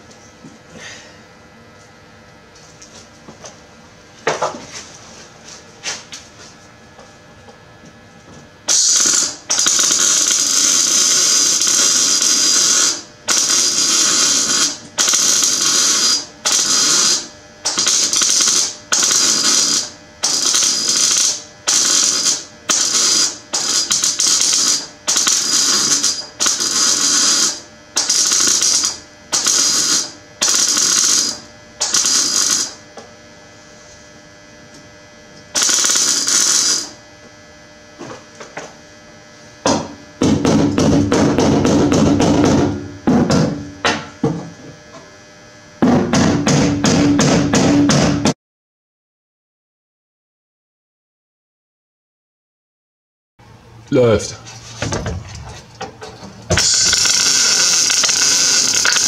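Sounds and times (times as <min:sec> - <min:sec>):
welder crackling bursts: 0:08.7 - 0:32.8, 0:35.5 - 0:37.1, 0:56.4 - 0:59.0.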